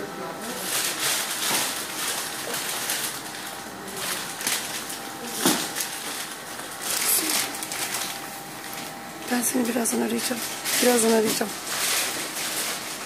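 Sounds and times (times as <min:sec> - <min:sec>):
plastic packaging crinkling: 0:00.6 - 0:13.0.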